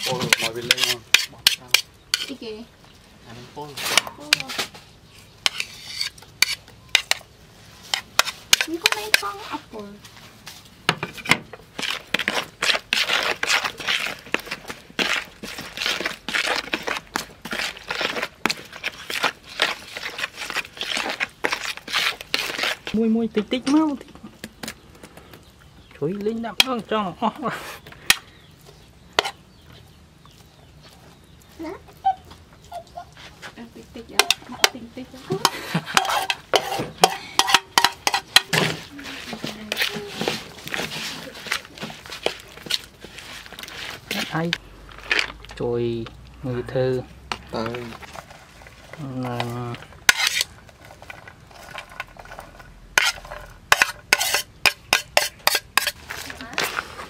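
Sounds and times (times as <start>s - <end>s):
metal spoon scraping a plate: 0.0s - 2.4s, 5.4s - 7.2s, 29.2s - 29.4s, 35.4s - 41.5s, 50.0s - 52.4s, 53.0s - 56.0s.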